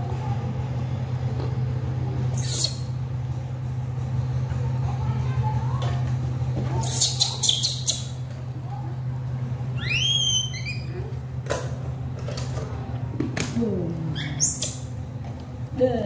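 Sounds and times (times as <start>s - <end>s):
steady low hum: 0.0s - 16.0s
baby monkey squeaking: 2.4s - 2.9s, 6.8s - 8.2s, 9.8s - 11.0s, 14.2s - 14.9s.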